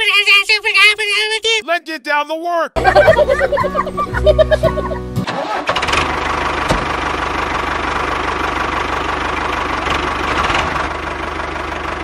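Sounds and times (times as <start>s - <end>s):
tractor engine knocking: 2.8s - 12.0s.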